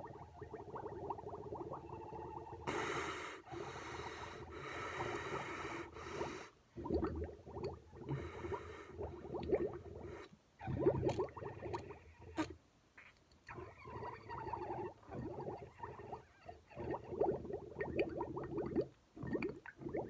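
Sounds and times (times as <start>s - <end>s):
milk bubbling through a straw: 0.0s - 2.7s, 6.8s - 12.6s, 13.5s - 20.0s.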